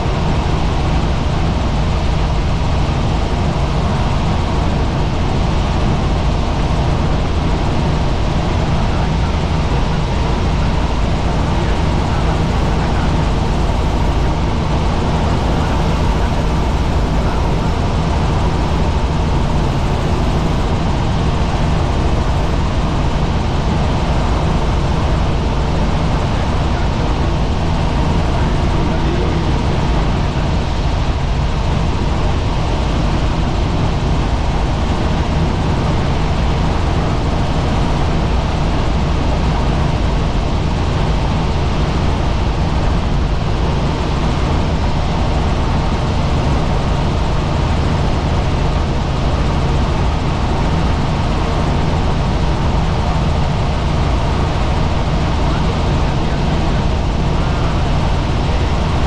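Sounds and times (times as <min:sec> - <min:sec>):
low hum: 0:00.0 - 0:39.3
helicopter rotor drone: 0:00.0 - 0:59.0.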